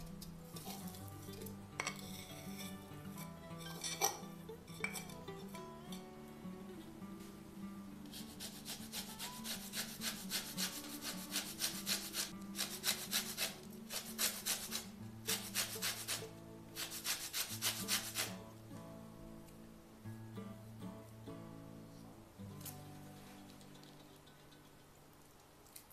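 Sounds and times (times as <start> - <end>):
lemon peel rasping on grater: 8.1 - 16.2, 16.8 - 18.3.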